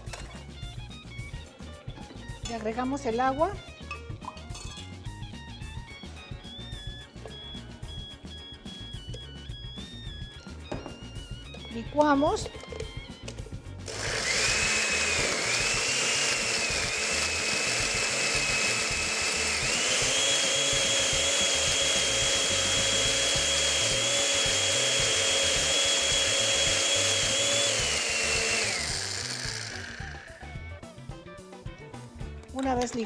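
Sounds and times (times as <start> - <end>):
blender motor whine: 13.8 - 30.8.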